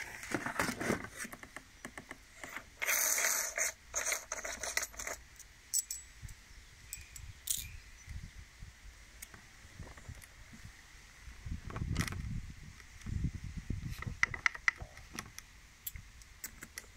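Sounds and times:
cardboard box scraping and rustling: 0.0 - 1.4
small metallic clicks and clinks: 2.8 - 8.1.

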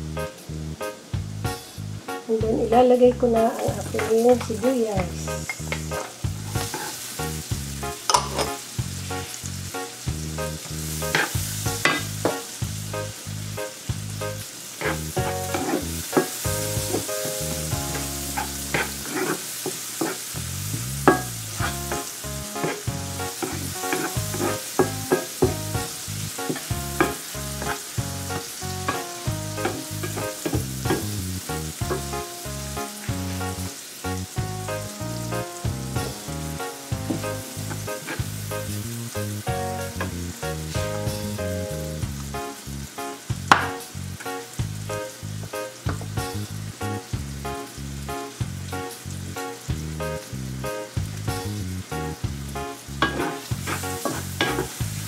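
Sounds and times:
onion and garlic sizzling in pan: 0.0 - 55.0
spatula tapping and scraping pan: 3.6 - 7.0, 8.1 - 8.6, 11.0 - 12.5, 14.8 - 20.2, 21.1 - 28.0, 28.8 - 31.2, 31.8 - 32.2, 37.0 - 38.7, 53.0 - 55.0.

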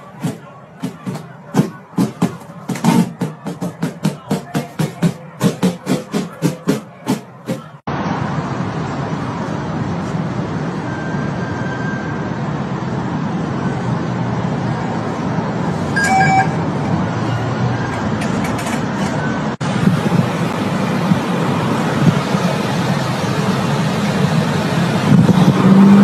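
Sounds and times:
street traffic noise: 0.0 - 26.0
short high tone: 16.0 - 16.6.

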